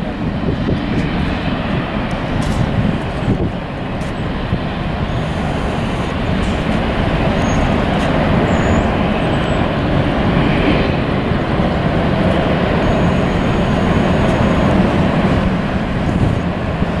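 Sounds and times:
jet engines roaring at takeoff: 0.0s - 17.0s.

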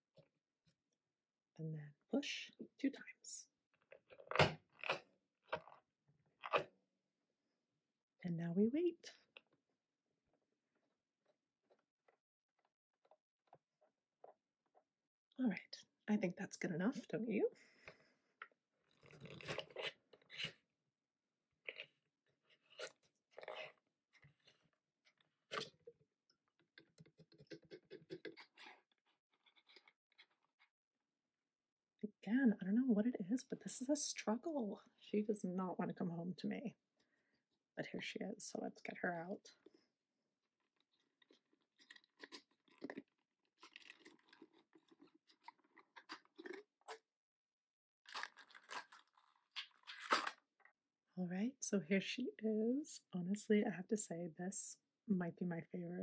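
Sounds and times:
small clicks and scrapes: 17.8s - 20.6s, 21.7s - 30.7s, 40.7s - 47.0s, 48.1s - 50.8s
plastic packaging crinkling: 48.1s - 50.4s.

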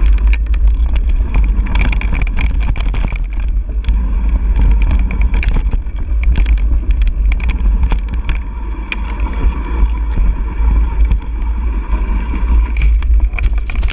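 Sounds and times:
tyres on dirt: 0.0s - 10.3s
bike clicks and rattles: 0.0s - 11.4s, 12.7s - 13.9s
wind rumble on microphone: 0.0s - 13.9s.

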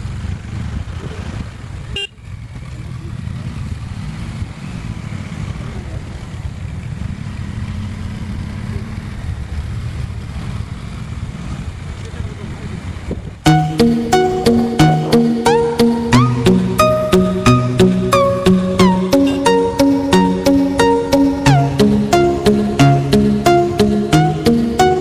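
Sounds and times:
car engine and road noise: 0.0s - 25.0s.

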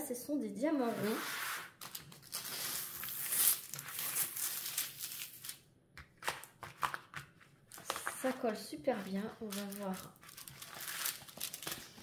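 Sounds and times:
plastic film crinkling and peeling: 1.8s - 5.6s, 7.7s - 12.0s.

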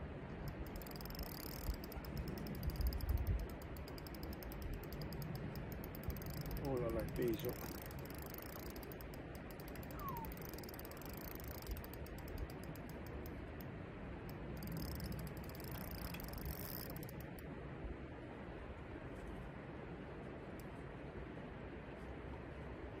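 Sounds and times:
low steady rumble: 0.0s - 23.0s
fishing reel ticking: 0.4s - 17.4s.

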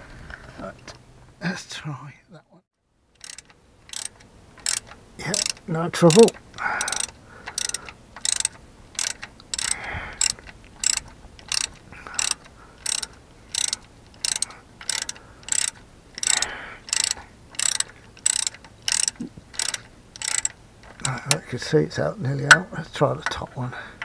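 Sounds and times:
socket ratchet clicking: 3.2s - 21.4s.

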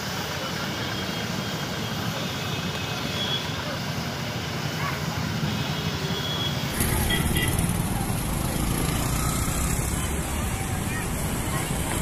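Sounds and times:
traffic rumble: 6.5s - 12.0s
scattered voices: 6.8s - 12.0s.

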